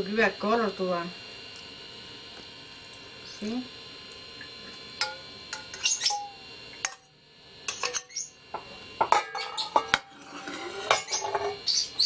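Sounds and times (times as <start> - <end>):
metal spoon scraping bowl: 5.5 - 6.3, 9.1 - 11.7.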